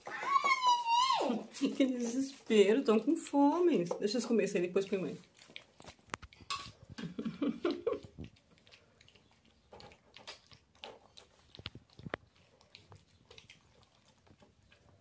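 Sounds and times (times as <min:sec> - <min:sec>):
puppies eating wet smacks: 0:00.0 - 0:15.0.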